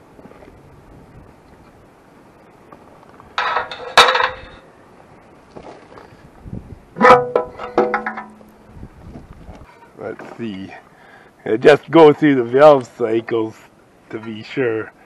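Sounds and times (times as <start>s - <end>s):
metal clanking and ringing: 3.4s - 4.6s, 7.0s - 8.6s.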